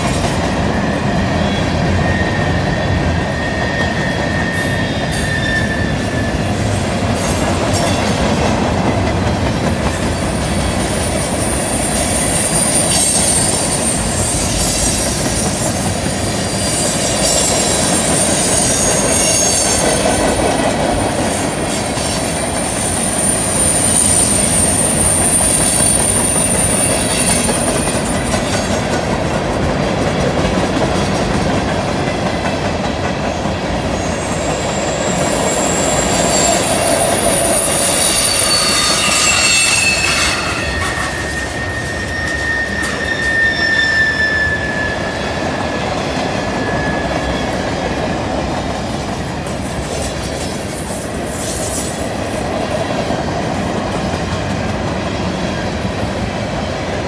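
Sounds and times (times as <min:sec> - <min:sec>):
train wheels rolling on rails: 0:00.0 - 0:57.0
high wheel flange squeal: 0:00.5 - 0:06.8, 0:10.2 - 0:20.4, 0:22.3 - 0:28.6, 0:33.9 - 0:47.8.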